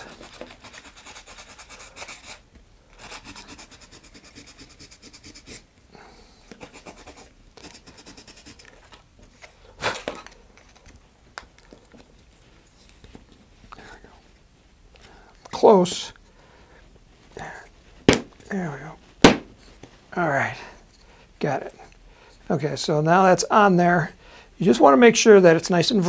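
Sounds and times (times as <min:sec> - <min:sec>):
hand sanding rasping: 0:00.0 - 0:02.4, 0:03.0 - 0:05.6, 0:06.5 - 0:08.7
sharp knock: 0:18.1 - 0:18.3, 0:19.2 - 0:19.5.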